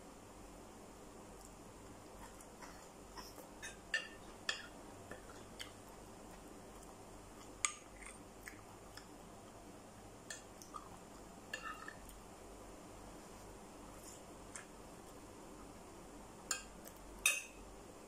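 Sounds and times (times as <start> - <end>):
chewing with mouth clicks: 5.1 - 9.2, 10.4 - 11.0
spoon tapping a plate: 16.5 - 17.6.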